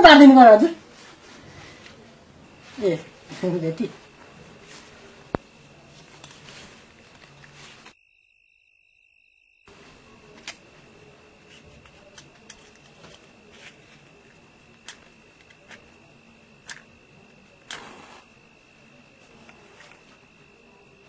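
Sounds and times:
thin high whine: 0.0 - 21.0
small objects clicking and tapping: 11.4 - 14.0, 14.7 - 16.0, 16.6 - 17.8
faint hiss: 17.2 - 19.9.

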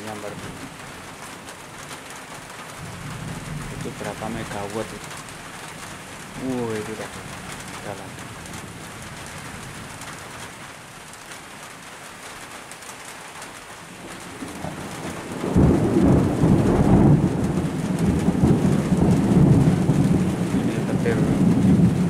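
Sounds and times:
deep rumble of thunder: 2.8 - 5.1, 14.0 - 22.0.

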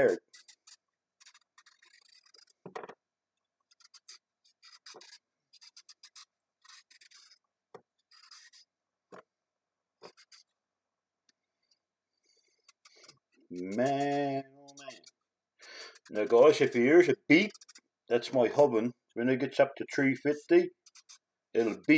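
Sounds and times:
knife scraping carrot peel: 0.0 - 2.6, 3.6 - 7.4, 11.6 - 18.3, 19.4 - 21.9.

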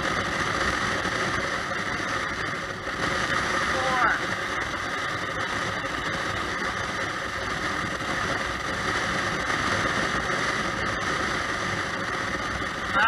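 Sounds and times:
road and wind noise: 0.0 - 13.0.

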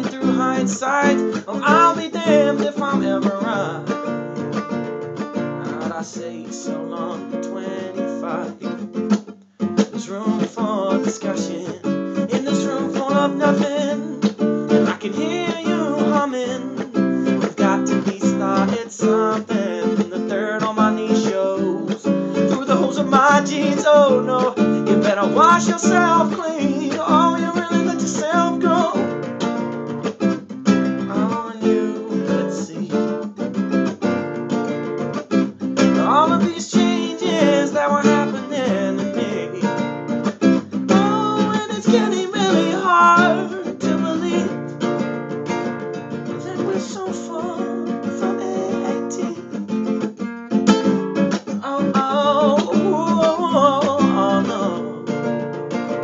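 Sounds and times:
man's wordless vocals: 0.0 - 4.5, 5.5 - 8.8, 9.9 - 29.2, 31.0 - 33.3, 35.8 - 39.9, 40.9 - 44.7, 46.3 - 49.6, 51.5 - 55.3
acoustic guitar strummed: 0.0 - 56.0.

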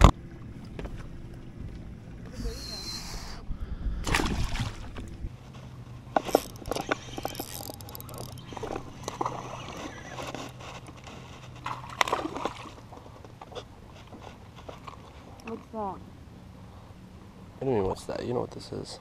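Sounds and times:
electric trolling motor humming: 0.0 - 13.9
water splashes: 4.0 - 5.2, 11.6 - 13.0.

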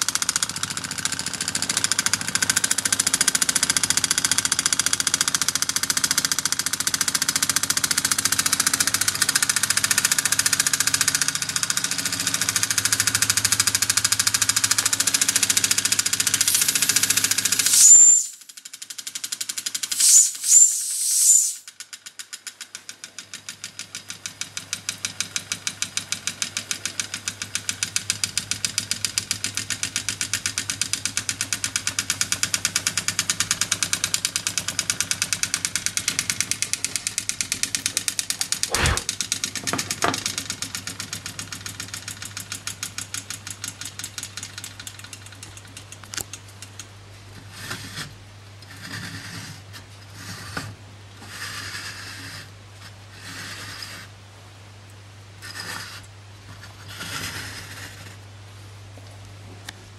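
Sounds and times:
toy steam engine chuffing: 0.0 - 22.0
sharp knocks: 38.7 - 39.1.

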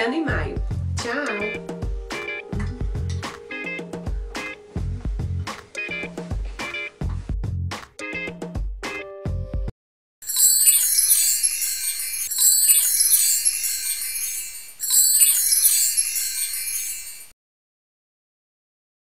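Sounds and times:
music track: 1.0 - 7.1, 10.3 - 17.3
high glittering chime: 10.2 - 17.4.

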